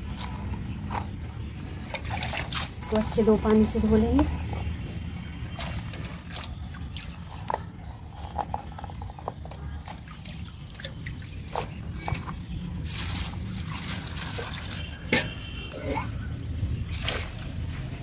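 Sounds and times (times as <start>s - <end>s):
water sloshing in metal bucket: 0.0s - 4.0s, 5.5s - 16.2s, 16.8s - 18.0s
water pouring: 5.6s - 16.0s.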